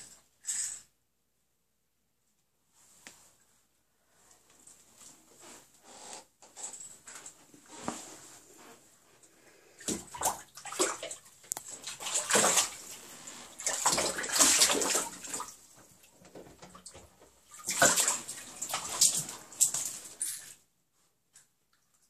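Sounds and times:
animals splashing in water: 0:09.8 - 0:15.6, 0:16.6 - 0:20.2.

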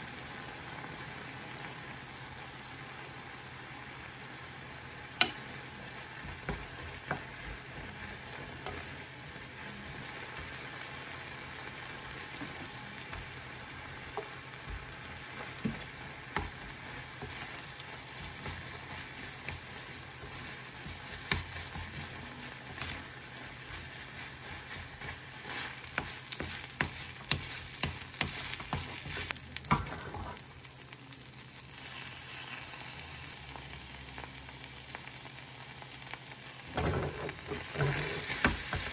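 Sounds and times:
fried rice sizzling in pan: 0:00.0 - 0:38.9
spatula knocking and scraping pan: 0:06.2 - 0:09.1, 0:12.3 - 0:30.4, 0:36.8 - 0:38.9.

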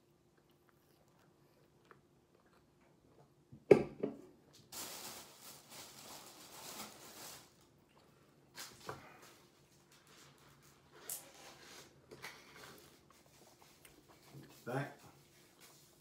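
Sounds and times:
faint chewing: 0:00.0 - 0:03.5, 0:12.2 - 0:16.0.

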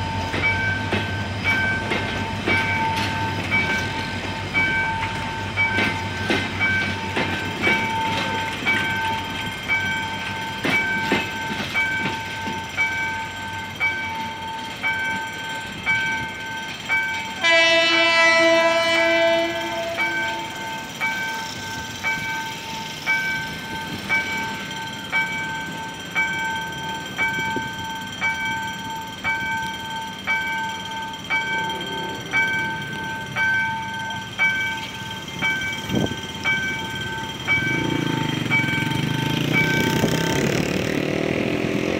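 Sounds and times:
train wheels clicking over rail joints: 0:00.0 - 0:41.9
locomotive horn blast: 0:17.4 - 0:20.5
warning chime pulsing: 0:19.1 - 0:41.9.

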